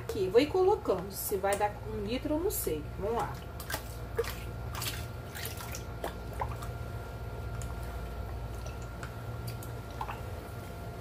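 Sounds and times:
water pouring and splashing: 3.2 - 6.8, 8.4 - 10.3.

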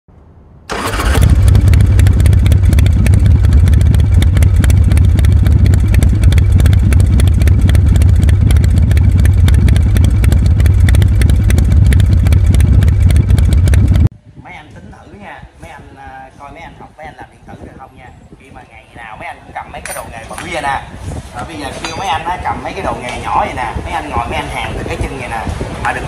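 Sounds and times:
motorcycle engine running: 0.7 - 14.1.

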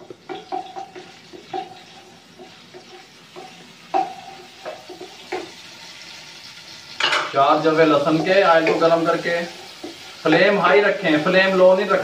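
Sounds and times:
spatula knocking against wok: 0.0 - 5.6
garlic sizzling in hot oil: 0.0 - 12.0.

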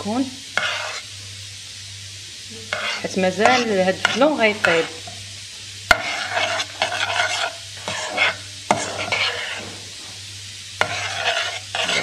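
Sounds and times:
spoon scraping caramel in saucepan: 0.6 - 1.1, 2.7 - 5.2, 5.9 - 9.7, 10.8 - 12.0.

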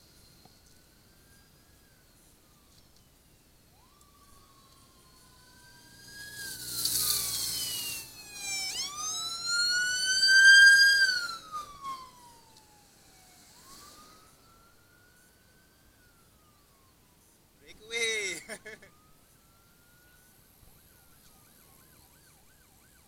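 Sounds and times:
motorcycle sirens wailing: 0.0 - 23.0
motor vehicle rushing past: 3.8 - 15.0.

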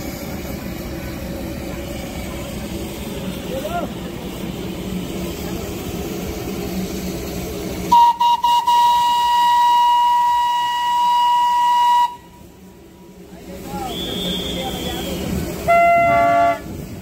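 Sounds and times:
steam whistle blowing: 7.9 - 12.5, 13.8 - 16.8.

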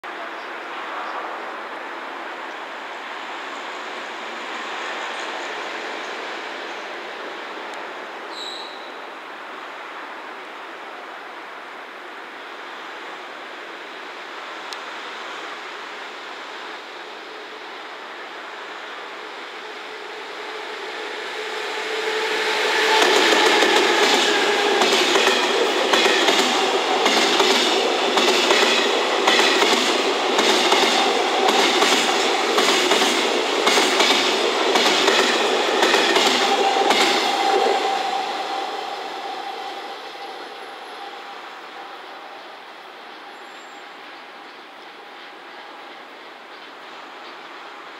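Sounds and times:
train wheels on rail: 0.2 - 9.9, 12.2 - 47.9
train wheels clattering over joints: 22.9 - 37.7.

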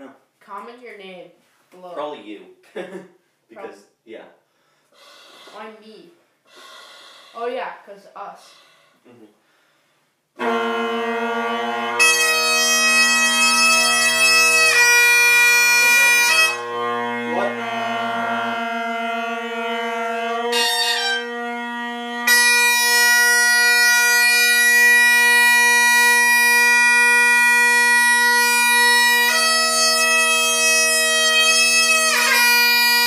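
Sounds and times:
bagpipe chanter notes: 10.4 - 33.0
bagpipe drones: 10.4 - 33.0.

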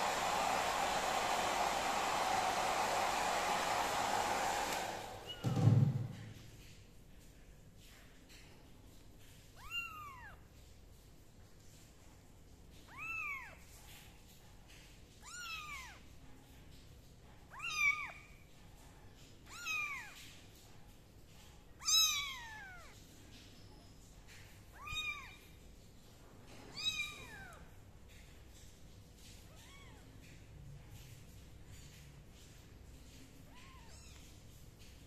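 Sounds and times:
kitten meowing: 9.6 - 10.4, 21.8 - 23.0, 24.8 - 25.4, 26.7 - 27.6, 29.5 - 30.0, 33.5 - 34.3.

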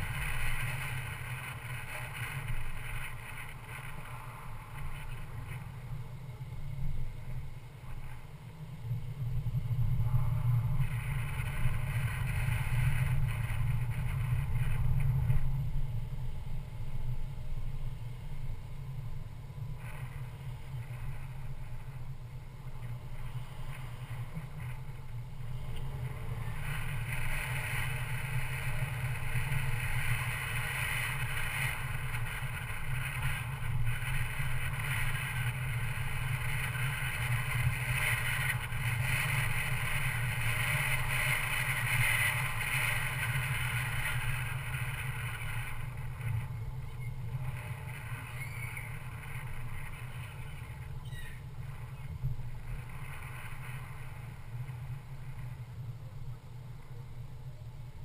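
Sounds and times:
hiss: 0.0 - 16.2, 19.6 - 55.6
car engine and road rumble: 0.0 - 58.0.

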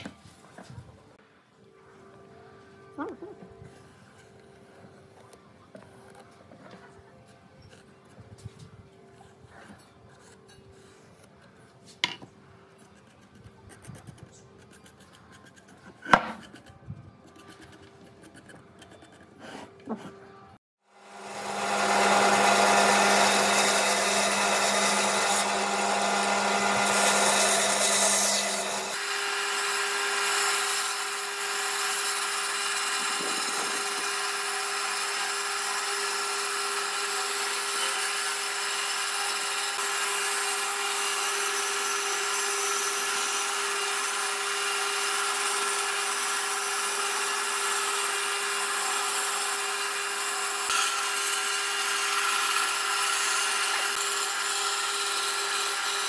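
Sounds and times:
saw blade cutting wood: 12.8 - 20.2, 21.0 - 56.0
bandsaw hum: 21.0 - 56.0.

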